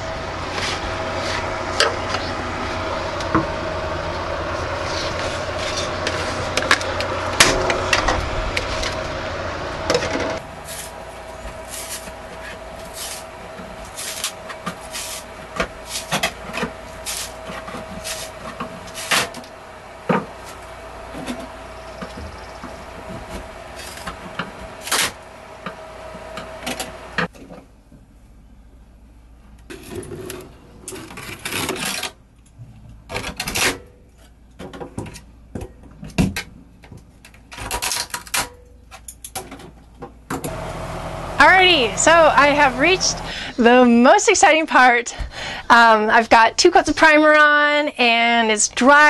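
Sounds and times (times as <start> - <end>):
steady hum: 0.0 - 29.6, 40.4 - 49.0.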